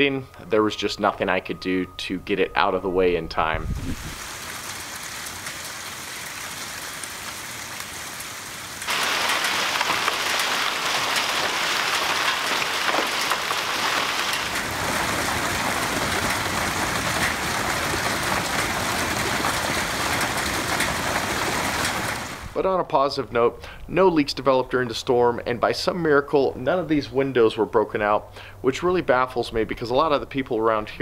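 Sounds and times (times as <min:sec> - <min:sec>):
hail and heavy rain hiss: 0:04.0 - 0:22.6
hail ticking: 0:04.2 - 0:22.6.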